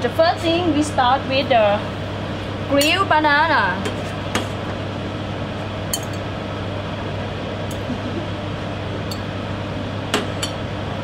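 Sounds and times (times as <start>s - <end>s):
fan hum: 0.0s - 11.0s
metal tongs clinking on plate: 5.9s - 6.2s.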